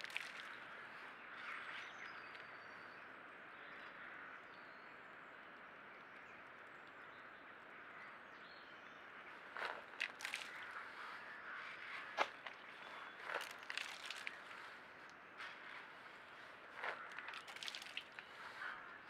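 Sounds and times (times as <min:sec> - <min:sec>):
distant bird calls: 0:06.3 - 0:19.0
birds scratching in leaf litter: 0:11.9 - 0:18.8.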